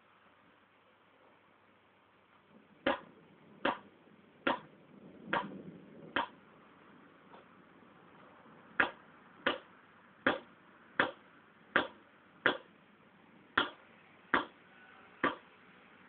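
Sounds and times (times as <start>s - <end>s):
paintball marker firing: 2.9s - 3.9s, 10.3s - 11.2s, 11.8s - 12.7s.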